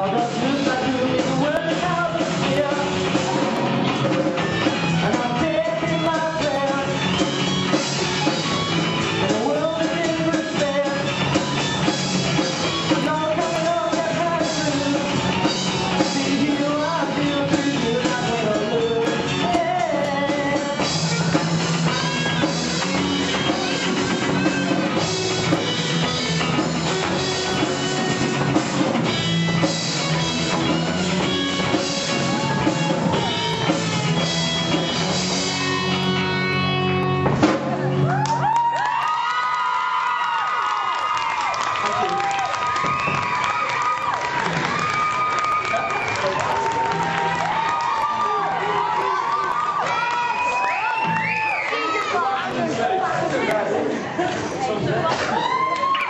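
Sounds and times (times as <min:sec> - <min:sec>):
person singing: 0:00.0 - 0:07.3, 0:09.0 - 0:11.6, 0:12.4 - 0:23.9
drums: 0:00.0 - 0:56.0
guitar: 0:00.0 - 0:56.0.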